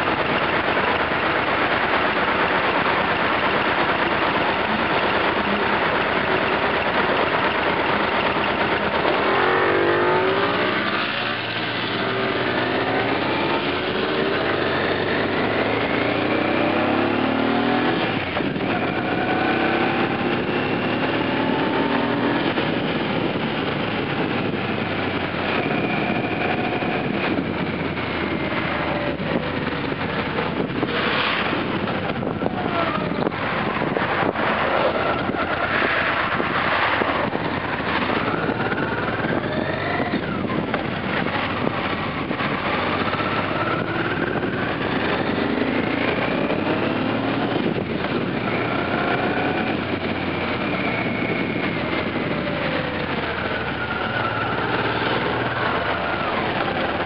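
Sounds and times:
scooter engine accelerating: 0:00.0 - 0:57.0
wind rush on microphone: 0:00.0 - 0:57.0.

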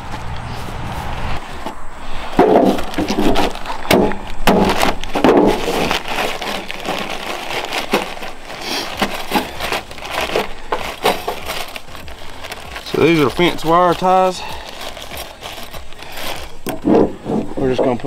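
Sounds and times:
plastic bag crinkling: 0:02.7 - 0:16.7.

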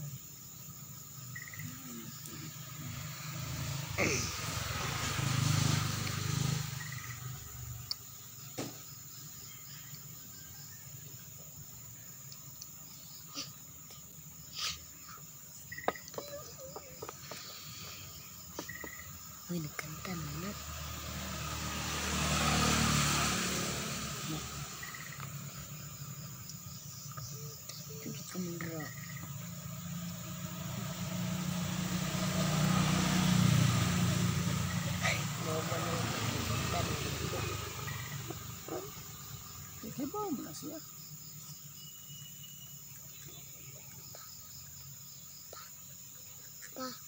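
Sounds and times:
road noise: 0:00.0 - 0:47.0
vehicle passing by: 0:01.0 - 0:11.9, 0:16.4 - 0:41.8, 0:42.7 - 0:47.0.

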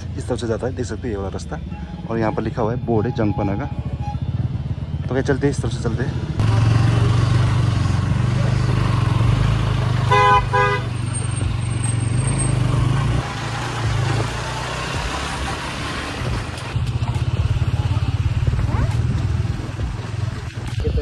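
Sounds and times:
motorcycle engine running: 0:03.2 - 0:21.0
motorcycle horn toots: 0:10.1 - 0:11.1.

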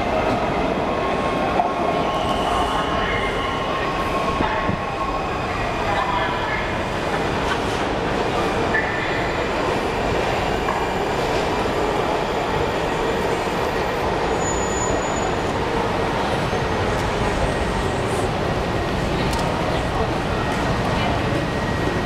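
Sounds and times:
high squeal: 0:14.3 - 0:15.5.

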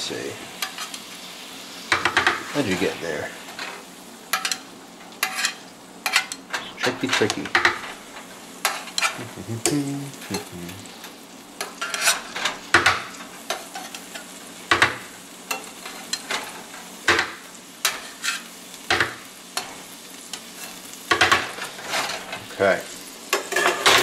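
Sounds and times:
sauce sizzling in a pan: 0:00.0 - 0:24.0
metal tongs scraping a skillet: 0:00.6 - 0:01.1, 0:03.4 - 0:22.6, 0:23.3 - 0:24.0.

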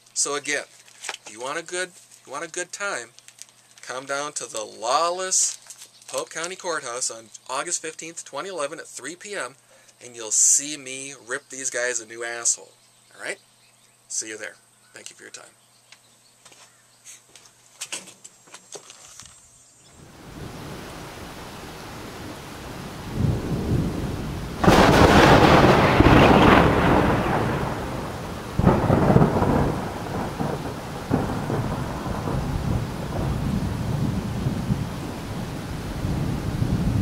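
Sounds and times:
steady rain: 0:19.9 - 0:37.0
thunderclaps rumbling: 0:20.0 - 0:37.0.

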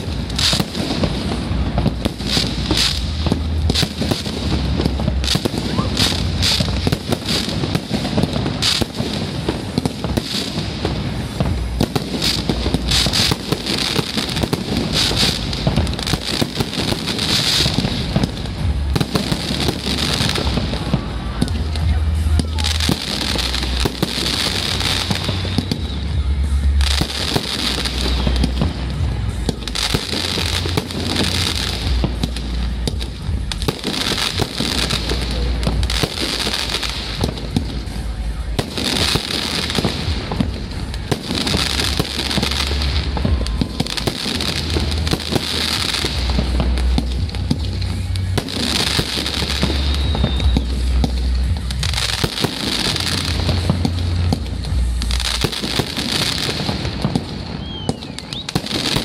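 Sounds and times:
fireworks bursting and crackling: 0:00.0 - 0:59.0
music with deep bass: 0:00.0 - 0:59.0.

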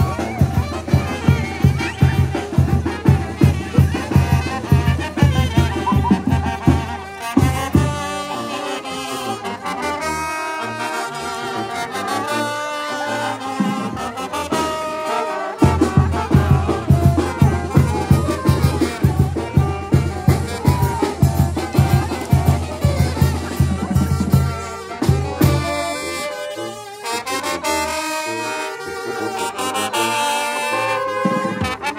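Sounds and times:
bass drum and percussion beat: 0:00.0 - 0:08.3, 0:15.6 - 0:26.2
brass band playing: 0:00.0 - 0:31.9.

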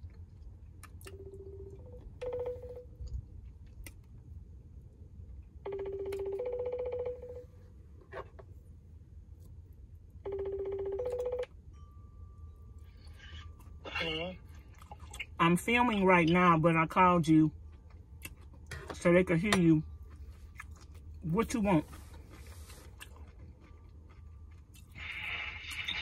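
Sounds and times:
two-note phone ringing tone: 0:01.1 - 0:02.9, 0:05.6 - 0:07.6, 0:10.2 - 0:12.4.

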